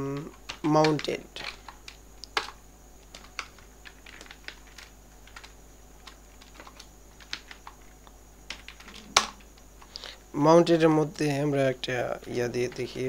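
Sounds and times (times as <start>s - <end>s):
keyboard typing: 0.0s - 10.1s.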